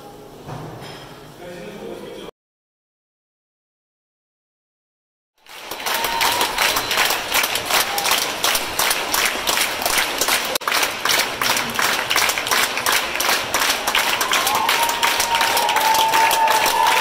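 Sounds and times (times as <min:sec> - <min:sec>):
audience applauding: 0:05.4 - 0:17.0.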